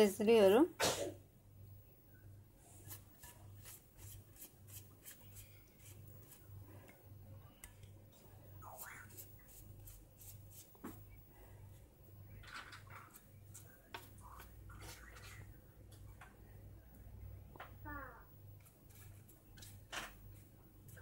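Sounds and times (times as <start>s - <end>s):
pastry brush dabbing: 2.6s - 6.7s, 8.6s - 11.2s.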